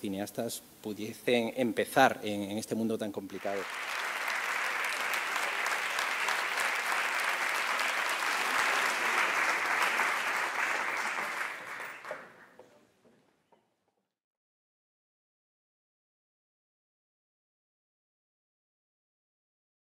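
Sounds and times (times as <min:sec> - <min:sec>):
audience applauding: 0:03.3 - 0:12.6.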